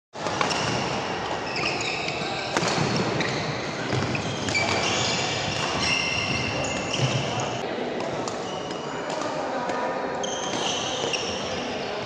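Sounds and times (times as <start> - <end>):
sneakers squeaking on wooden floor: 0.3 - 7.6, 10.2 - 11.7
racket hitting shuttlecock: 2.5 - 7.3.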